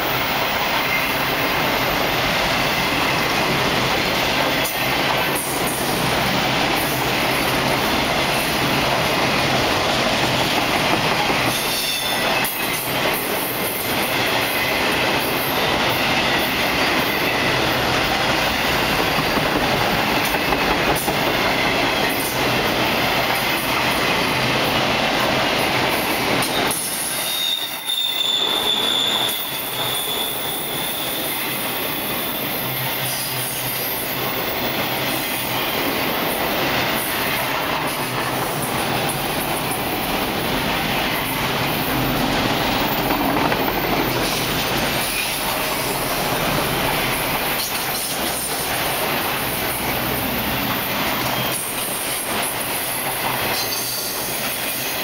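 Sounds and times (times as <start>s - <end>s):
train wheels rumbling on rail: 0.0s - 55.0s
high wheel squeal: 11.5s - 12.8s, 26.4s - 35.8s.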